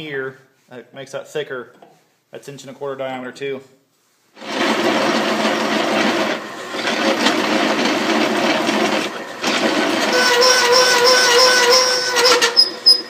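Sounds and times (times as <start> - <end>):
drill press boring steel: 4.4 - 13.0.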